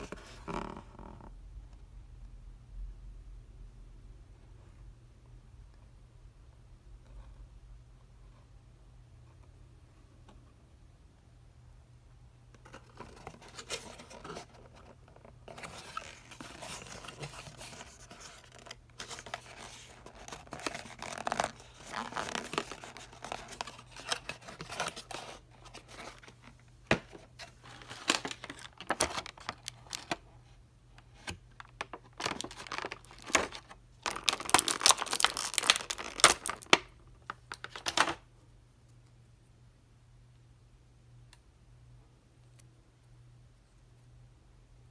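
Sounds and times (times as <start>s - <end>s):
cardboard and plastic packaging rustling: 0.0s - 0.8s, 12.6s - 38.2s
packaging crinkling: 12.7s - 30.2s, 31.2s - 38.2s.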